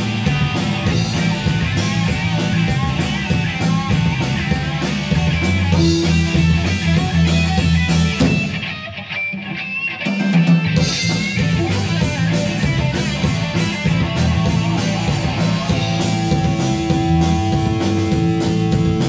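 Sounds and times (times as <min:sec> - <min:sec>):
drum and cymbal hits: 0:00.0 - 0:08.7, 0:10.2 - 0:19.0
electric bass: 0:00.0 - 0:09.6, 0:10.6 - 0:19.0
electric guitar: 0:00.0 - 0:19.0.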